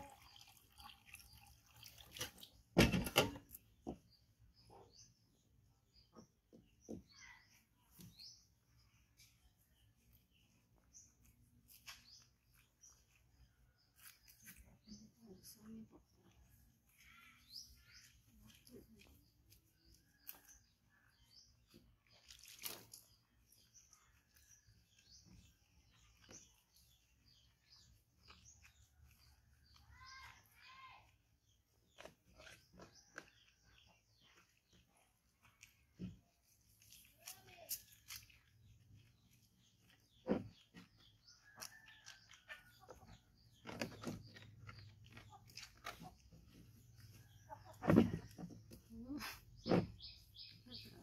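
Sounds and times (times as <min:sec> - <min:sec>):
soapy fur squelching and rubbing: 0:00.0 - 0:51.0.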